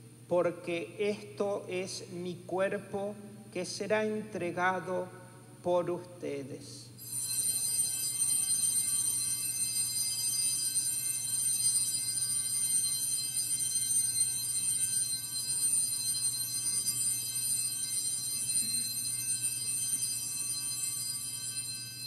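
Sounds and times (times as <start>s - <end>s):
bell-like keyboard chord: 7.1s - 22.0s.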